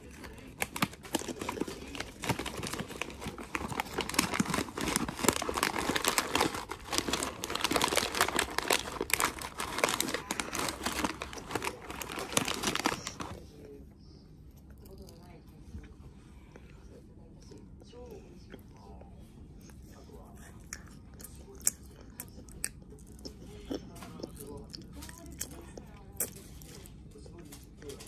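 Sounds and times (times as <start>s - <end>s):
snack packaging crinkling: 0.0s - 13.5s, 21.6s - 28.0s.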